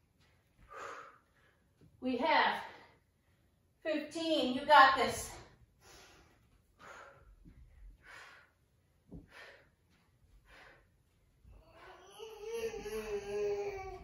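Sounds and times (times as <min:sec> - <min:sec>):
woman breathing hard: 0:00.6 - 0:01.8, 0:05.6 - 0:14.0
toddler babbling: 0:11.9 - 0:14.0.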